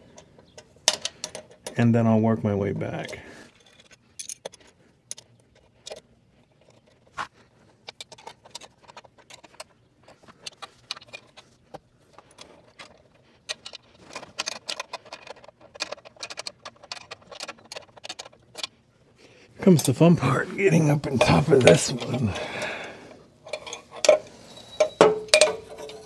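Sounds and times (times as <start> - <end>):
metal wrenches clinking: 20.8 - 22.6, 23.4 - 26.0.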